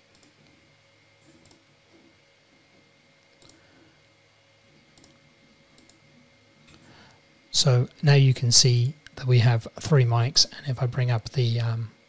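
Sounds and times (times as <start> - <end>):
faint computer mouse clicks: 3.3 - 3.6, 5.0 - 5.2, 5.8 - 6.0.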